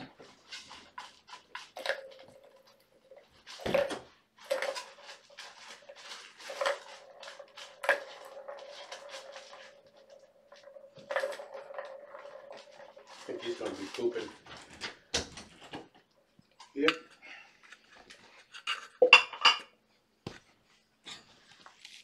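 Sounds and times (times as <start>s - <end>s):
toys clicking and rattling: 0.0s - 16.9s.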